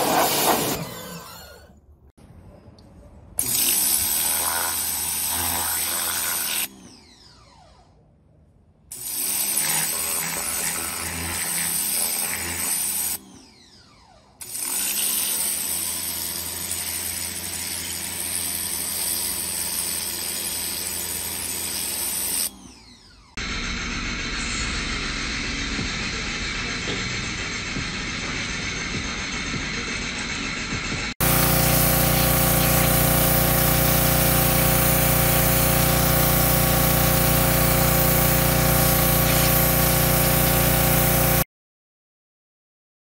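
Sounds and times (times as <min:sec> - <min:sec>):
pressure washer water jet hiss: 0:00.0 - 0:00.8, 0:31.2 - 0:41.4
pressure washer motor hum: 0:00.0 - 0:01.7, 0:31.2 - 0:41.5.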